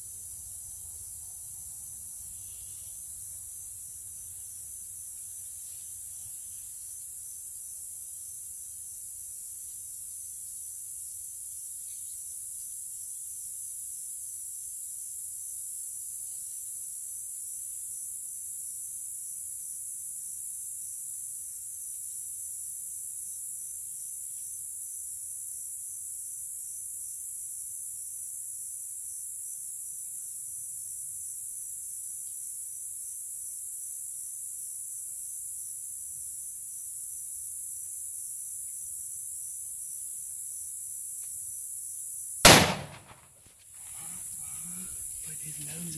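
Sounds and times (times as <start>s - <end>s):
high-pitched hiss: 0.0s - 21.6s, 43.8s - 45.9s.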